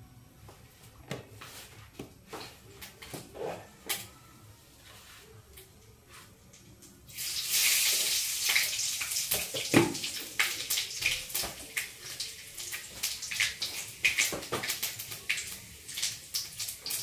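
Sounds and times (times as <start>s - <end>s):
hot oil sizzling and popping: 7.1s - 17.0s.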